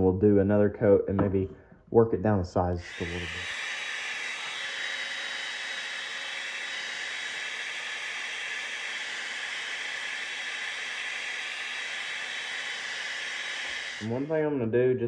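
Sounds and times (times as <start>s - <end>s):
hair dryer blowing air: 2.8s - 14.3s.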